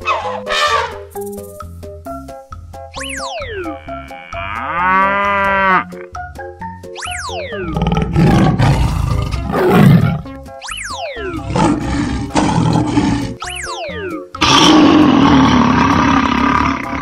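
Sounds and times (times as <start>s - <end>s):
light children's music: 0.0s - 17.0s
big cat roar: 7.7s - 10.2s, 11.4s - 13.4s, 14.4s - 17.0s.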